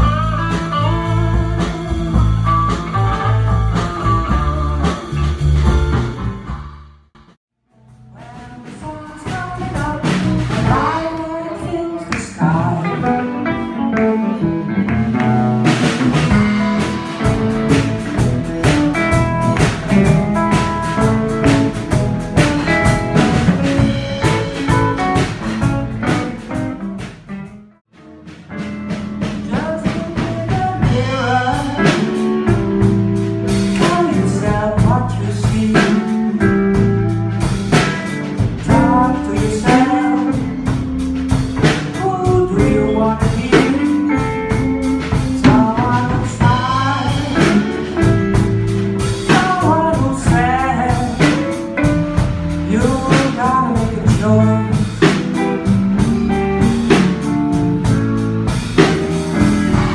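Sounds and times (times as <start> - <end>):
live blues band playing: 0.0 - 59.9
woman singing: 8.1 - 13.3.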